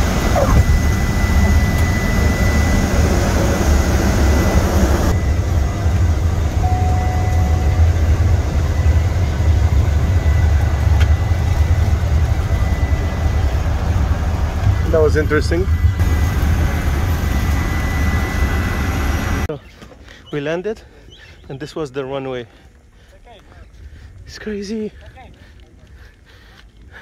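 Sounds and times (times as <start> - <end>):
engine rumble inside plane cabin: 0.0 - 19.5.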